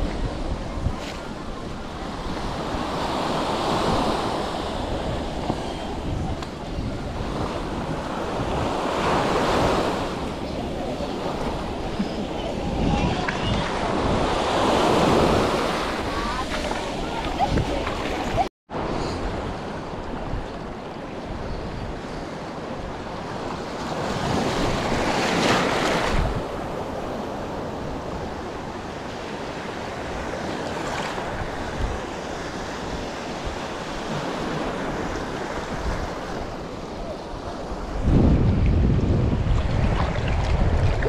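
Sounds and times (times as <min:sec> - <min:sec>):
sea waves washing: 0:00.0 - 0:20.2
wind buffeting microphone: 0:00.0 - 0:30.5, 0:31.1 - 0:41.0.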